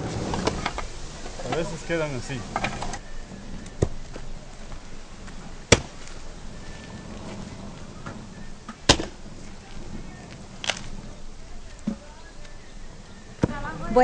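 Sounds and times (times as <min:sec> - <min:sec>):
low steady background noise: 0:00.0 - 0:14.0
sharp cracks: 0:10.6 - 0:11.0.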